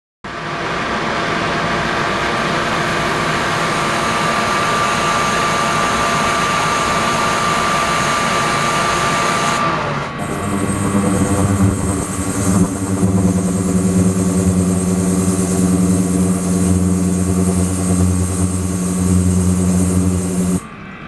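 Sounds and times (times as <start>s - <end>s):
thin high tone: 10.2s - 20.7s.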